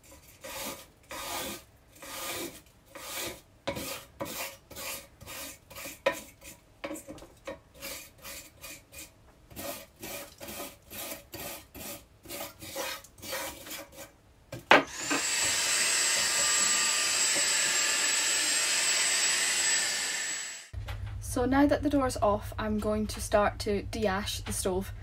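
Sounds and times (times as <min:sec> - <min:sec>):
stick vacuum whining: 0:14.8 - 0:20.8.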